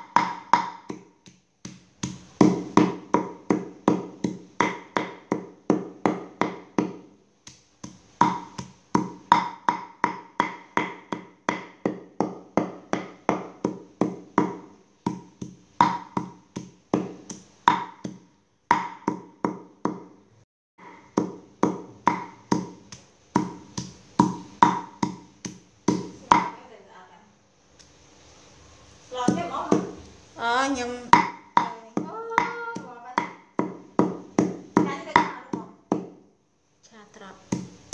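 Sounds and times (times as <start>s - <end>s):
cleaver chopping on wooden board: 0.0s - 7.0s, 7.8s - 20.1s, 20.8s - 26.5s.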